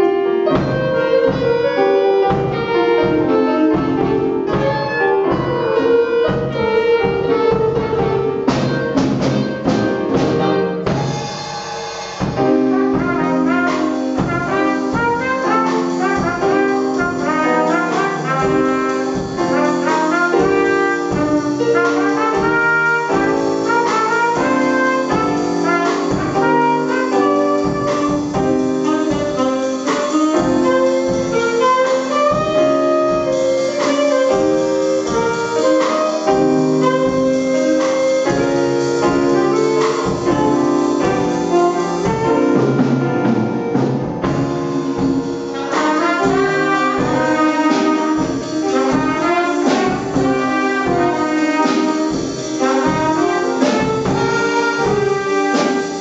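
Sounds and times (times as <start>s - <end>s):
jazz band playing: 0.0s - 56.0s
hard drum hits: 0.5s - 56.0s.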